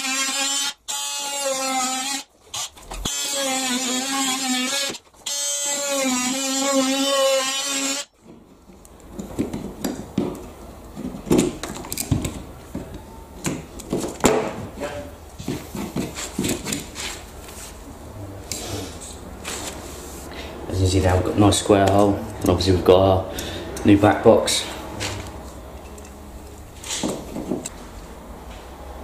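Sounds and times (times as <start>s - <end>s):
oscillating multi-tool buzzing: 0.0s - 8.1s.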